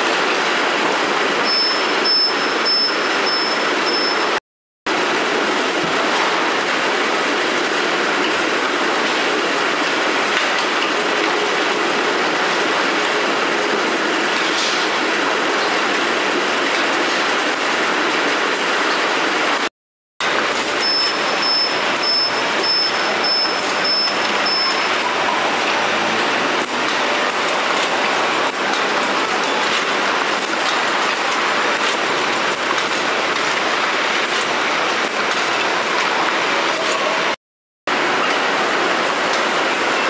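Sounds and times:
conveyor machinery clattering: 0:00.0 - 0:40.0
high warning beep: 0:01.4 - 0:04.4, 0:20.6 - 0:25.4.

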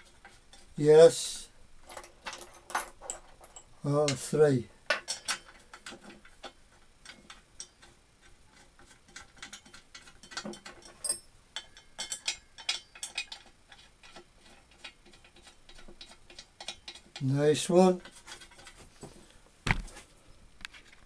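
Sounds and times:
faint metal clicks and taps: 0:04.9 - 0:17.2.

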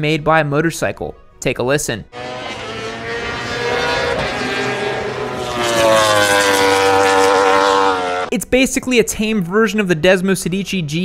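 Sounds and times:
motorcycle engine running hard: 0:02.2 - 0:08.3.

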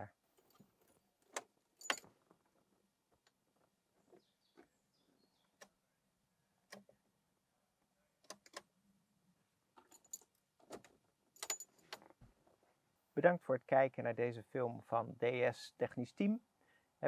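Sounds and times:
small parts and tools clicking: 0:09.8 - 0:12.1.

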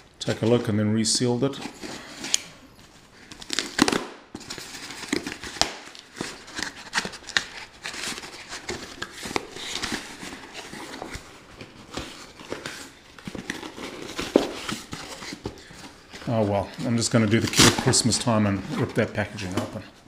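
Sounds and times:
cardboard rustling and scraping: 0:01.5 - 0:20.0.

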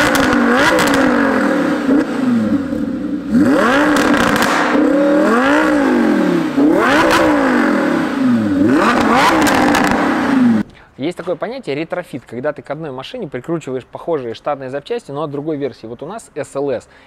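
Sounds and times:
sports car engine revving: 0:00.0 - 0:10.7.

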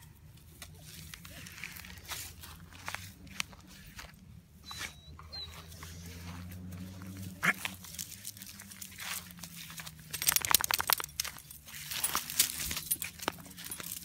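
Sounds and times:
rustling in dry leaves: 0:00.0 - 0:04.2, 0:05.6 - 0:14.0
light metallic clinking: 0:09.8 - 0:14.0.

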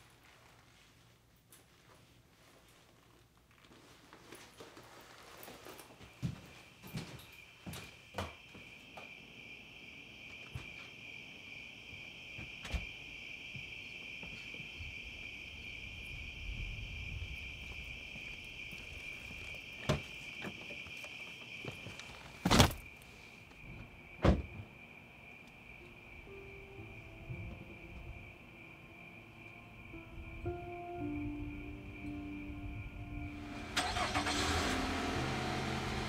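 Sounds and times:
light footsteps: 0:00.0 - 0:09.1
insects chirring: 0:04.6 - 0:36.0.

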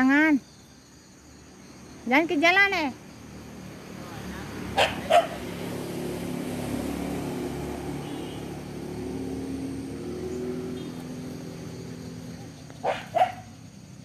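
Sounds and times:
vehicle engine passing by: 0:02.9 - 0:14.0.

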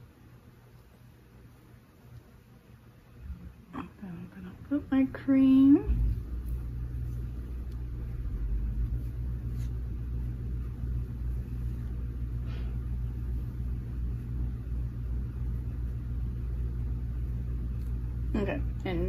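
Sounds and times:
low hum: 0:02.8 - 0:19.0
hair rustling while combed: 0:05.9 - 0:18.3.

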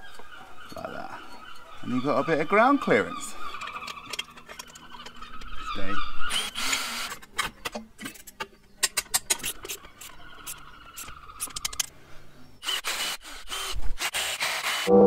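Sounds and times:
metal parts scraping: 0:03.5 - 0:05.6, 0:06.3 - 0:12.0.

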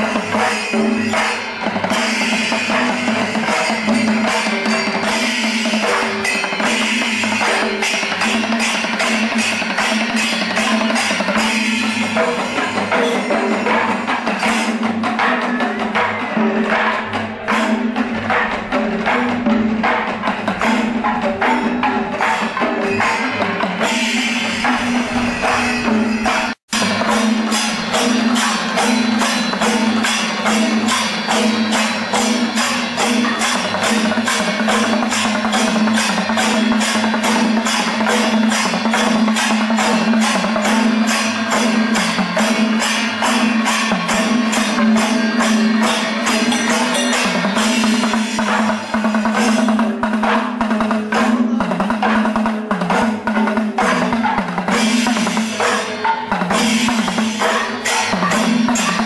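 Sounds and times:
drums: 0:00.0 - 0:59.0
hand cymbals clashing: 0:00.0 - 0:59.0.

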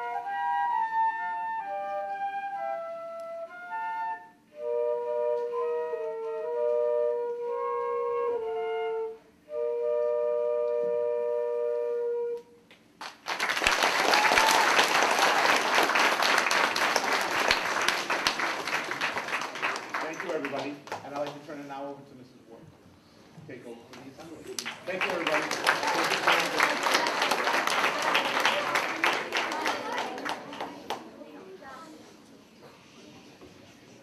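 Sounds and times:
flute duet: 0:00.0 - 0:12.7
audience applauding: 0:13.0 - 0:21.5, 0:24.5 - 0:31.2.

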